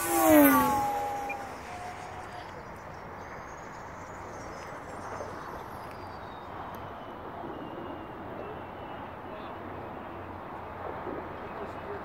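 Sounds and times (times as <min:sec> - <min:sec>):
high whine of electric motor: 0:00.0 - 0:06.3.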